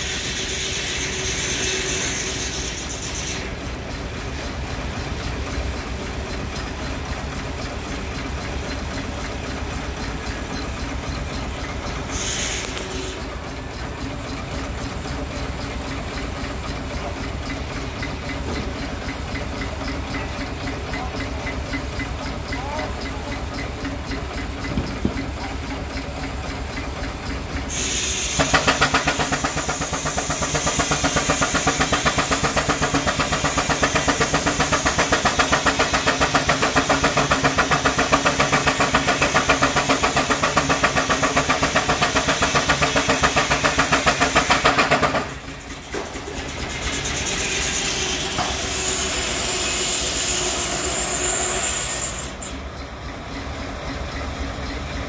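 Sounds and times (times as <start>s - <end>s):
high steam hiss: 0.0s - 3.6s, 11.9s - 13.3s, 27.6s - 52.5s
steam engine exhaust beating: 0.0s - 55.0s.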